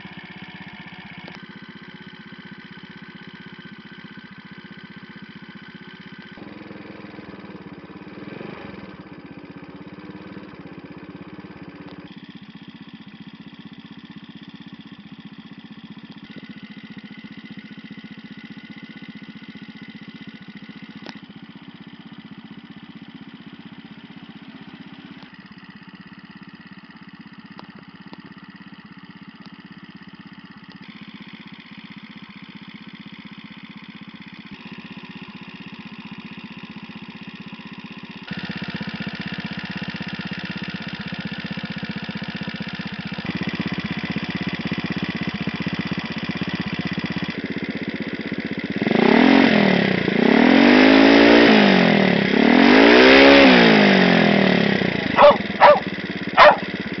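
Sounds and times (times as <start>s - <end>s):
scooter engine idling and revving: 0.0s - 57.0s
dog barking: 55.2s - 56.7s.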